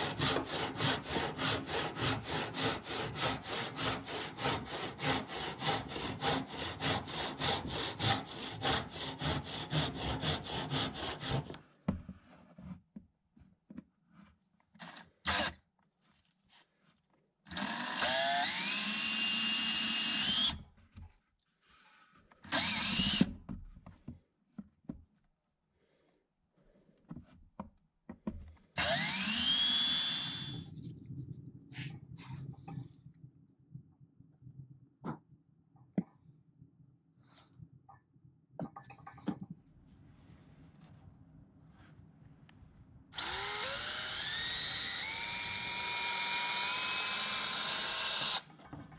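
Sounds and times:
hand saw cutting wood: 0:00.0 - 0:11.6, 0:22.5 - 0:23.4, 0:28.8 - 0:30.6
cordless drill boring into plastic: 0:14.8 - 0:15.6, 0:17.5 - 0:20.7, 0:22.4 - 0:23.4, 0:28.8 - 0:30.7, 0:43.1 - 0:48.6.

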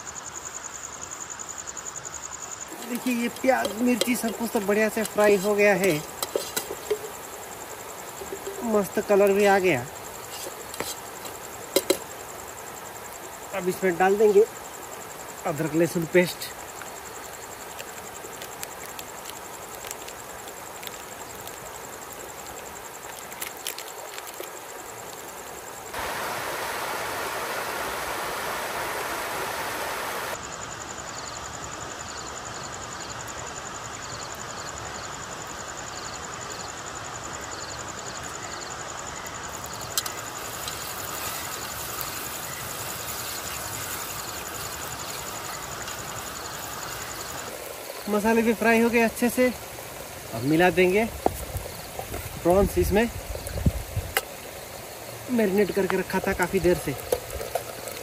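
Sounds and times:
insect trill: 0:00.0 - 0:58.0
spices sizzling in hot oil: 0:02.3 - 0:29.3, 0:38.8 - 0:58.0.

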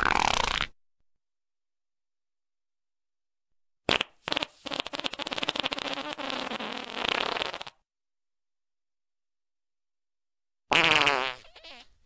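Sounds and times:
fart sound effect: 0:00.0 - 0:00.8, 0:03.9 - 0:07.8, 0:10.7 - 0:11.9.

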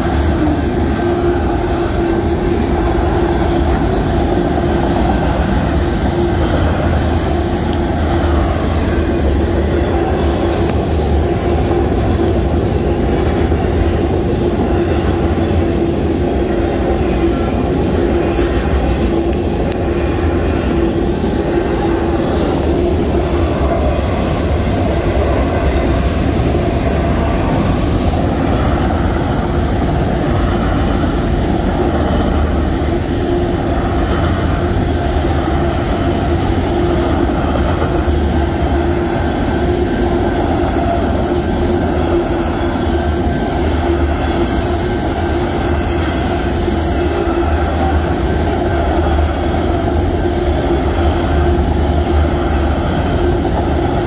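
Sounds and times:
steel wheels rumbling on rail: 0:00.0 - 0:54.0.

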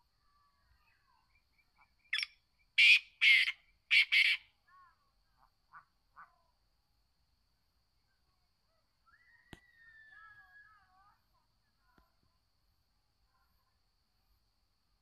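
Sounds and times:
bird calling harsh notes: 0:02.1 - 0:04.5.

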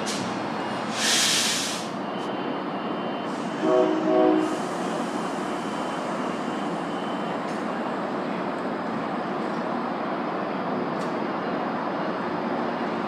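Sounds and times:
loud train hiss: 0:00.0 - 0:02.0, 0:03.3 - 0:06.8
train running noise: 0:00.0 - 0:13.0
train horn blasts: 0:03.6 - 0:04.8.

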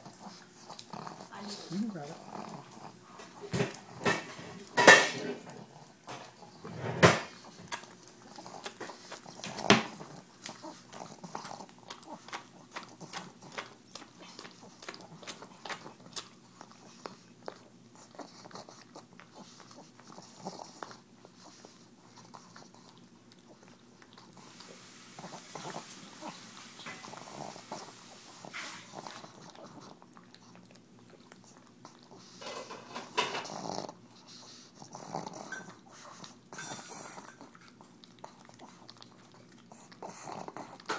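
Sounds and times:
dog snorting breaths: 0:31.8 - 0:37.4, 0:39.7 - 0:40.9.

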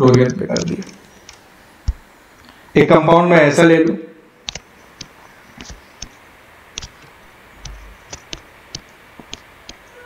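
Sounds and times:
stylus tapping on screen: 0:04.4 - 0:06.2, 0:06.8 - 0:09.8.

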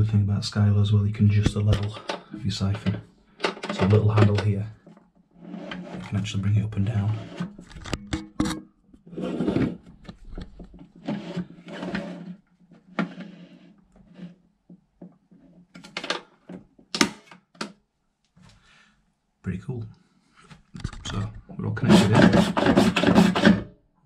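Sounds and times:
plastic scraping rubs: 0:01.3 - 0:14.4, 0:20.6 - 0:23.7.

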